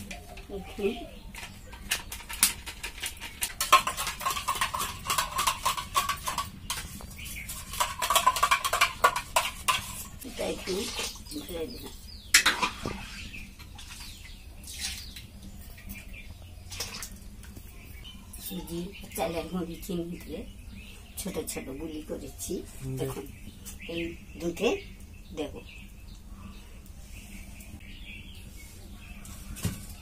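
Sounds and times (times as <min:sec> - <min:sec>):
steel utensils clinking and scraping: 0:01.4 - 0:12.9
ladle stirring in a wok: 0:02.9 - 0:11.4.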